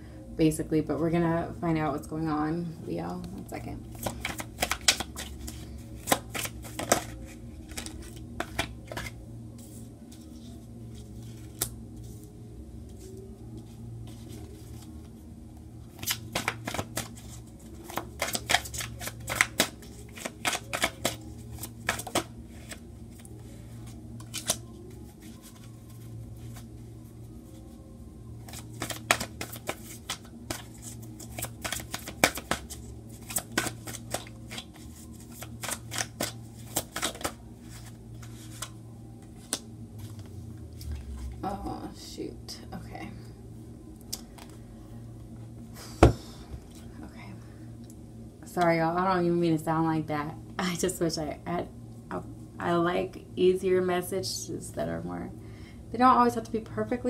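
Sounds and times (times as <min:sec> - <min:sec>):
steady low hum: 0:00.0 - 0:57.0
cards being shuffled: 0:03.9 - 0:15.1, 0:15.9 - 0:26.8, 0:28.4 - 0:41.3.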